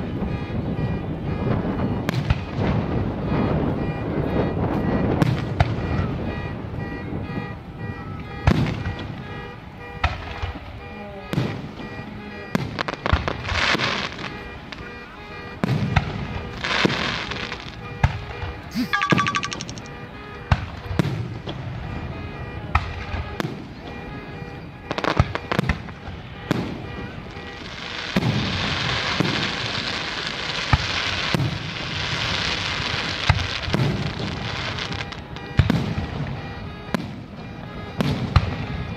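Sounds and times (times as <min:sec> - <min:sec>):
fireworks crackling: 0:12.6 - 0:14.8, 0:15.6 - 0:19.9, 0:24.9 - 0:36.3.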